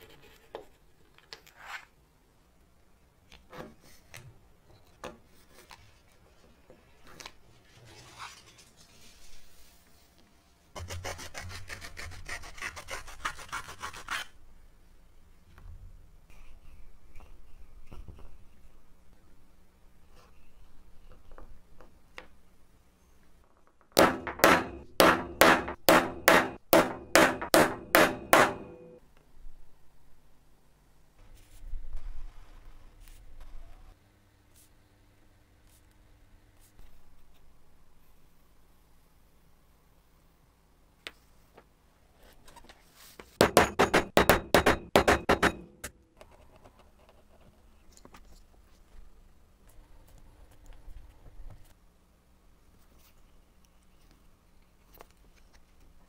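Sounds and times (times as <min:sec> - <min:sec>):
hammer striking steel punch: 0:24.0 - 0:29.0, 0:43.4 - 0:46.0.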